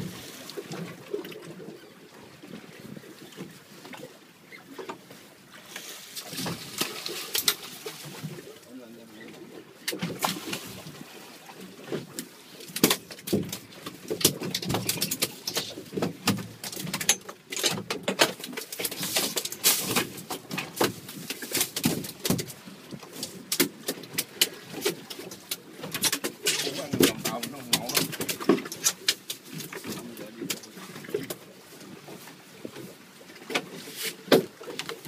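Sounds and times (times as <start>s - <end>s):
water splashing against boat hull: 0.0s - 35.0s.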